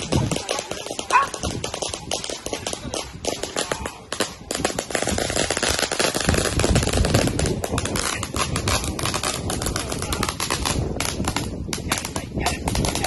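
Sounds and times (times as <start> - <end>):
firecrackers crackling: 0.0 - 13.0.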